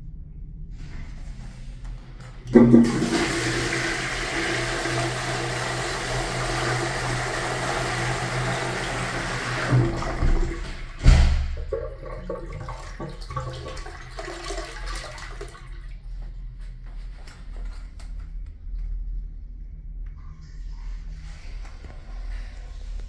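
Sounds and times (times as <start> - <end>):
toilet flushing: 2.3 - 16.1
heavy thump: 10.2 - 11.7
water trickling into toilet bowl: 11.6 - 16.1.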